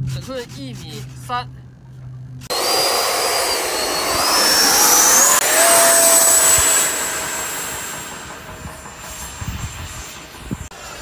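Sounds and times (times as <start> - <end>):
electric jet fan whine: 1.4 - 11.0
rush of air: 2.5 - 11.0.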